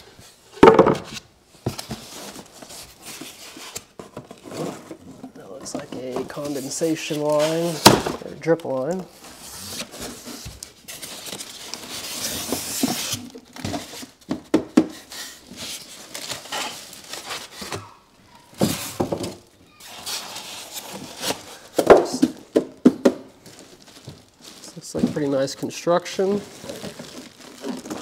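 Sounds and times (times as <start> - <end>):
plastic wrap rustling: 0.0 - 14.3, 14.9 - 28.0
styrofoam and cardboard scraping: 1.8 - 8.0, 9.2 - 14.2, 15.0 - 17.8, 19.8 - 21.7.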